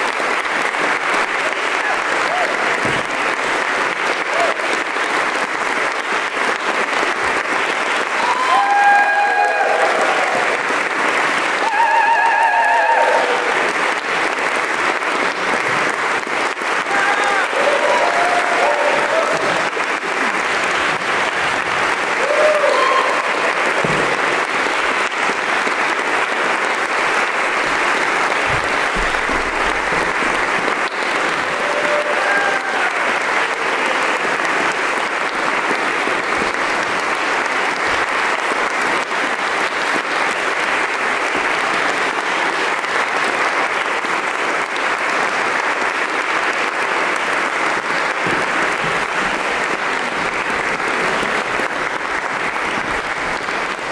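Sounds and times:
audience applauding: 0.0 - 53.9
audience cheers: 1.5 - 3.4, 4.1 - 4.8, 8.0 - 14.0, 16.7 - 25.0, 26.8 - 34.4.

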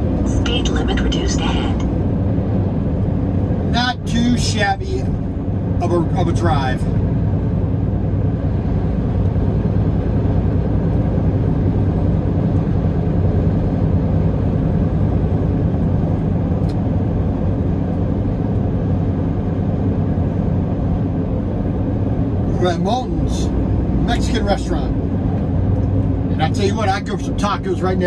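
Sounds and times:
truck engine and road drone: 0.0 - 28.0.

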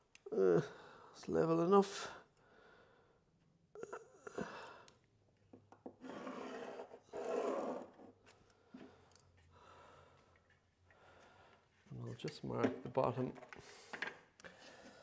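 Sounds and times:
pencil scratching: 6.0 - 8.0.

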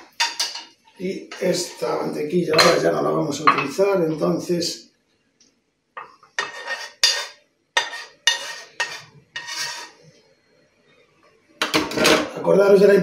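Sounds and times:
spatula scraping frying pan: 6.3 - 10.0.

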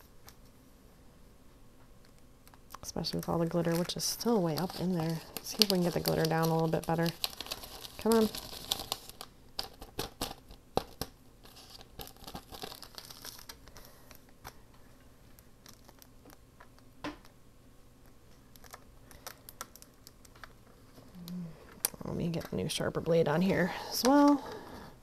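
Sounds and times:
paper rustling and crinkling: 3.0 - 14.6, 15.6 - 16.4.

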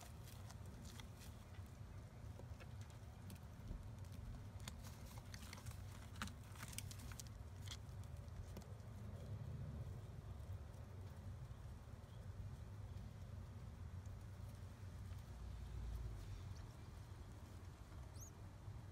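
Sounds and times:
straw rustling and clicking: 0.0 - 9.1
low steady rumble: 0.0 - 18.9.

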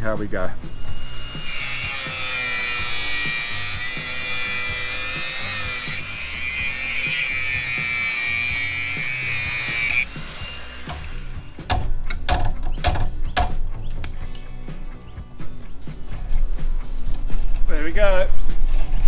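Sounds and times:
background music with steady beat: 0.0 - 19.0
angle grinder cutting metal: 0.6 - 11.8.

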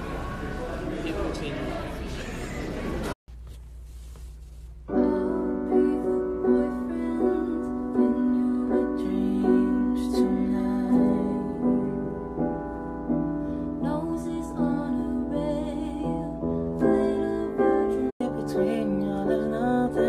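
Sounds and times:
woman singing: 4.9 - 12.4, 13.7 - 20.0
piano chords: 4.9 - 20.0.

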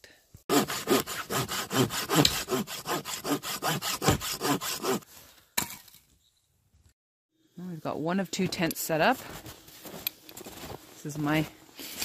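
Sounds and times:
hand saw cutting a log: 0.5 - 5.0.

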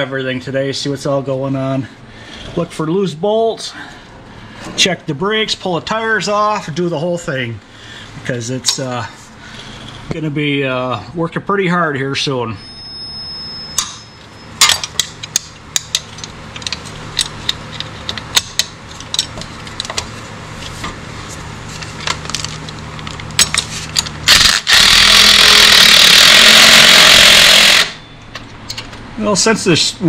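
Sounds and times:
low steady hum: 0.0 - 25.8, 26.5 - 30.0
cordless impact driver running: 24.3 - 28.0.

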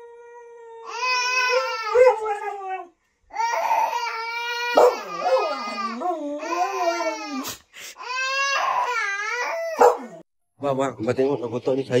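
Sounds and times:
dog howling: 0.0 - 2.9, 3.5 - 7.2, 8.6 - 10.2
baby's voice: 3.3 - 9.8.

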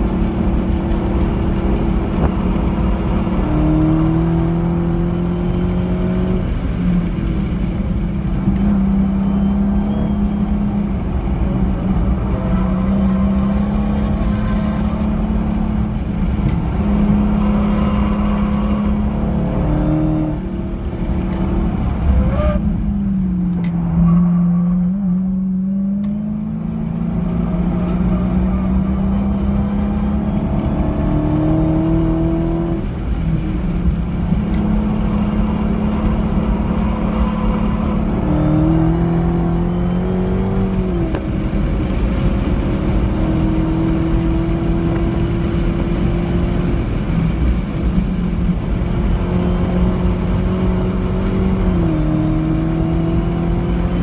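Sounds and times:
car engine revving under throttle: 0.0 - 54.0.

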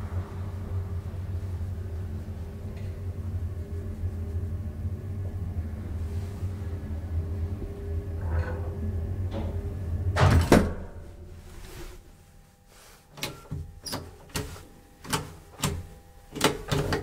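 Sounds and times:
elevator car humming: 0.0 - 17.0
elevator halting clunk: 8.1 - 11.2.

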